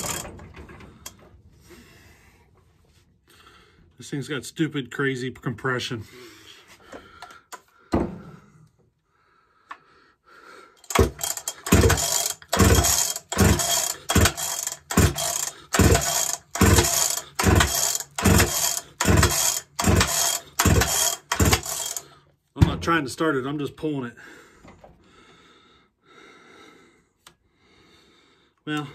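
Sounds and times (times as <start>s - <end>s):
chainsaw pull-start rope pulls: 0.0s - 1.2s, 10.8s - 22.2s.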